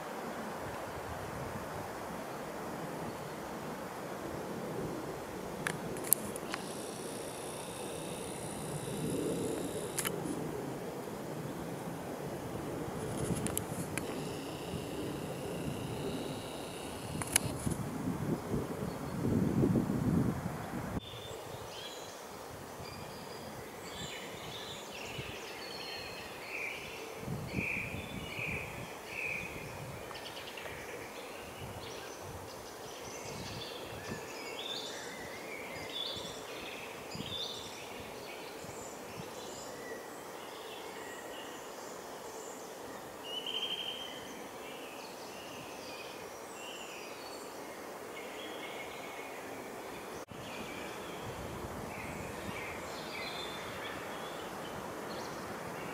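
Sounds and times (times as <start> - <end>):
steady background hiss: 0.0 - 55.9
songbirds calling and singing: 21.0 - 55.9.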